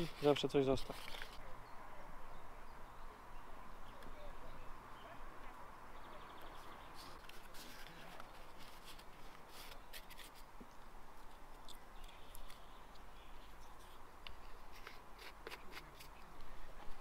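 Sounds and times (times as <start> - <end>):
paper rustling: 0.0 - 1.4, 7.0 - 10.5.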